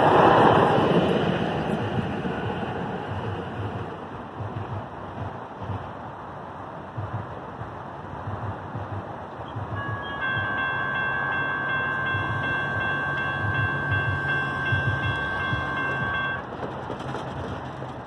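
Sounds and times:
electronic crossing bells ringing: 9.5s - 16.5s.

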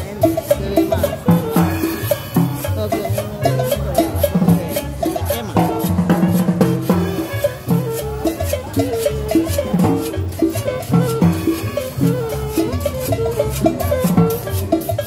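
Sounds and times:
live band playing latin dance music: 0.0s - 15.0s.

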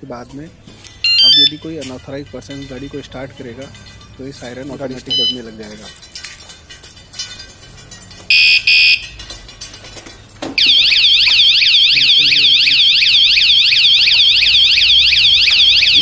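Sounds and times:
short electronic beeps: 1.0s - 1.6s
warbling anti-theft siren: 8.3s - 9.1s, 10.6s - 16.0s.

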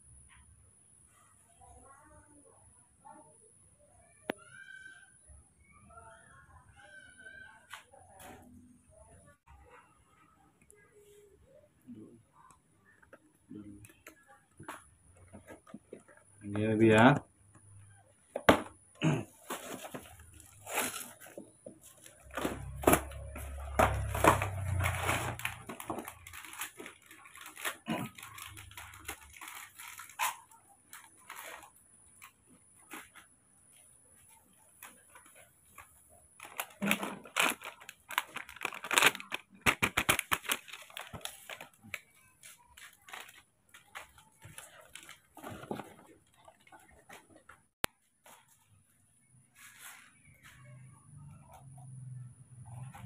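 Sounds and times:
foil packet crinkling and tearing: 19.4s - 33.0s, 34.7s - 47.3s.

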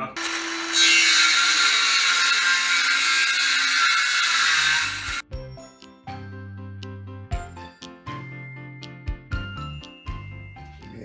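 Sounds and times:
power tool whirring: 0.2s - 5.2s
jingly music: 5.2s - 11.0s.

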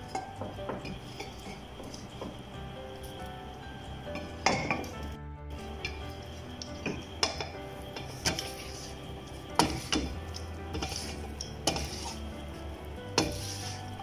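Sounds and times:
spatula scraping rice in pan: 7.2s - 14.0s.

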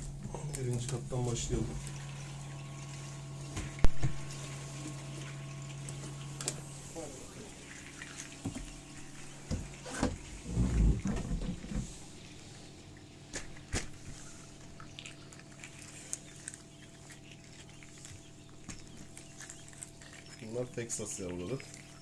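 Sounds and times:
steady low hum: 0.0s - 22.0s
chicks cheeping: 0.3s - 6.8s, 7.5s - 22.0s.

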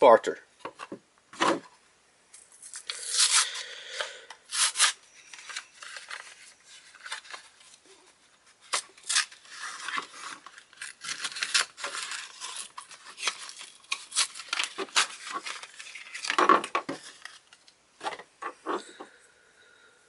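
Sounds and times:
card tearing from plastic: 2.6s - 3.6s, 4.5s - 7.4s, 8.6s - 17.6s.

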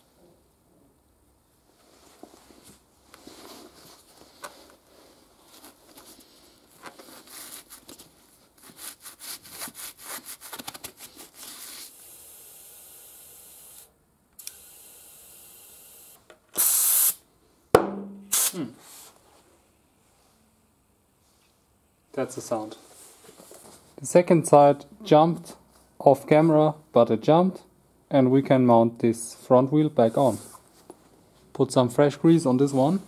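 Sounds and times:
tire inflator air rush: 16.6s - 17.2s, 18.3s - 19.0s
steady hiss: 18.3s - 19.4s.

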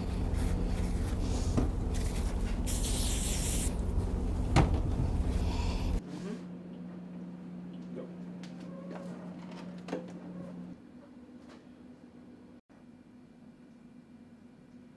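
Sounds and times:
steady low hum: 0.0s - 8.5s
hiss: 2.7s - 3.8s.

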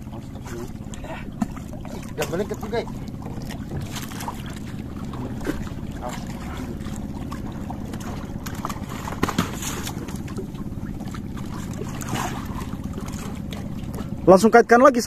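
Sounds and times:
knocks in boat: 0.0s - 14.3s
boat engine idling: 0.0s - 15.0s.

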